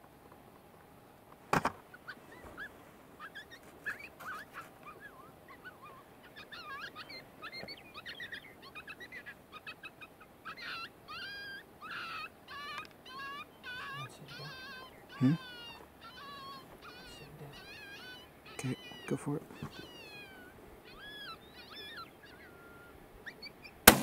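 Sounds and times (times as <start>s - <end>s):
coyote yips and howls: 2.0s - 23.8s.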